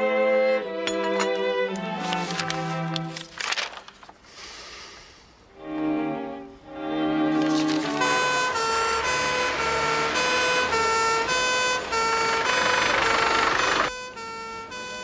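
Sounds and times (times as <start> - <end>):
van rushing past: 7.0 - 14.8
two-tone emergency siren: 7.9 - 15.0.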